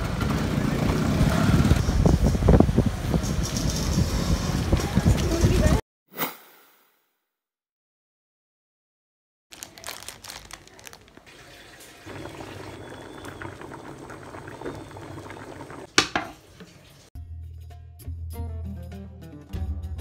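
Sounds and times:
pot bubbling and crackling: 0:09.5 - 0:17.1
music: 0:17.2 - 0:20.0.

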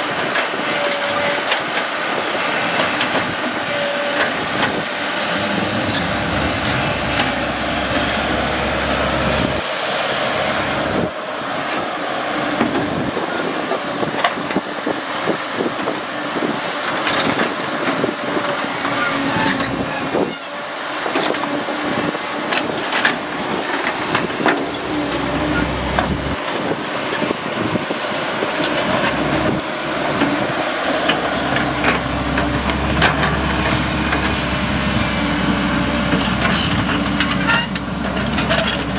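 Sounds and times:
excavator diesel engine running: 0:00.0 - 0:38.9
bucket and tracks clanking: 0:00.2 - 0:38.9.

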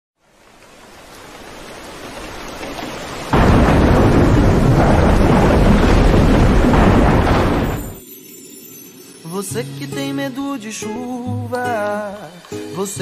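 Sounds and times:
heavy rain: 0:00.2 - 0:08.0
loud thunder rumble: 0:02.7 - 0:08.0.

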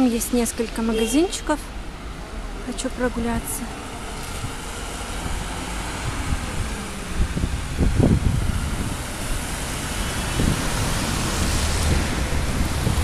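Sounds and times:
traffic hiss on wet road: 0:00.2 - 0:13.0
wind buffeting microphone: 0:02.8 - 0:13.0.

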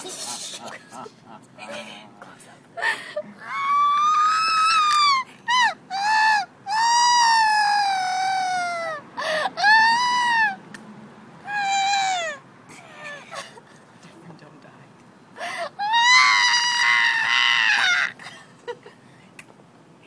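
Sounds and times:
high-pitched wailing cries: 0:03.4 - 0:10.6, 0:11.4 - 0:13.6, 0:15.4 - 0:18.4.

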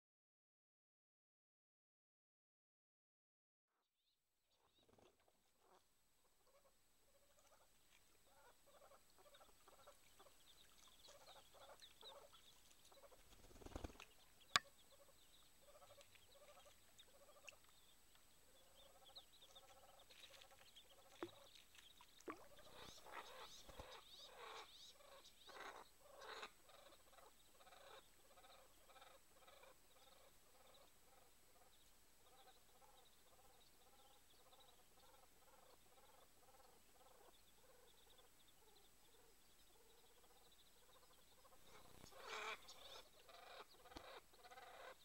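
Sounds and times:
ducks and ducklings calling: 0:08.3 - 0:13.2, 0:22.5 - 0:45.0.

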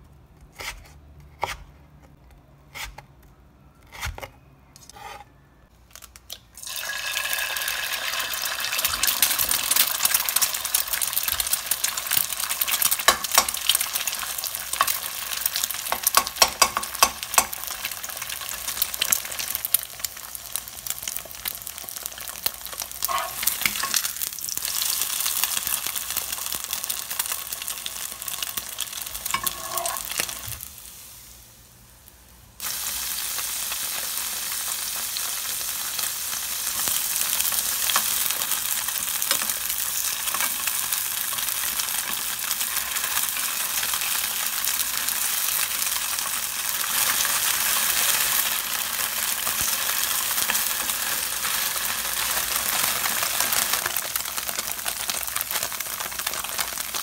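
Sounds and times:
eggs frying in oil: 0:06.3 - 0:57.0
tofu sizzling in oil: 0:06.6 - 0:57.0.

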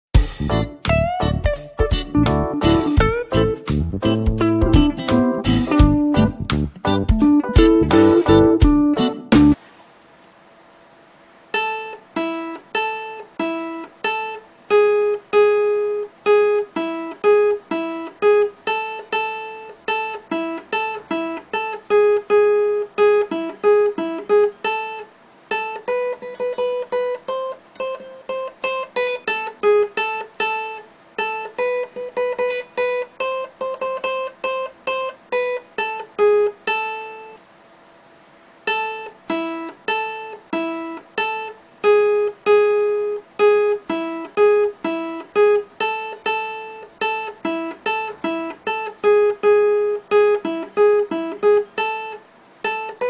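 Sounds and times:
plucked string melody: 0:00.2 - 0:09.6, 0:11.6 - 0:37.4, 0:38.7 - 0:53.0.

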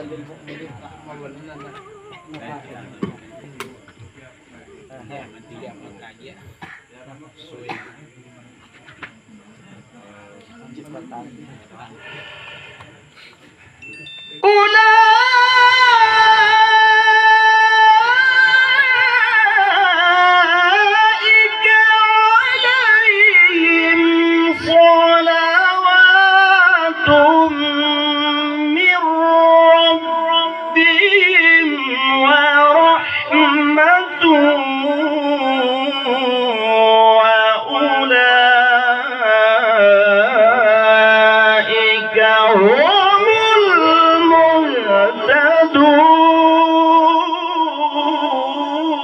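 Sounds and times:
short breaths: 0:12.0 - 0:13.8
man chanting into microphone: 0:14.4 - 0:49.0.

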